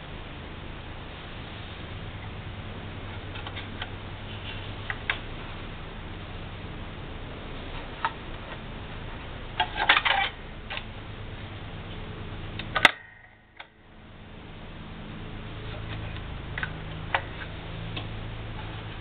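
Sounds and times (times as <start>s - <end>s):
steady low hum: 0.0s - 19.0s
metal clicks and clatter: 9.6s - 10.9s.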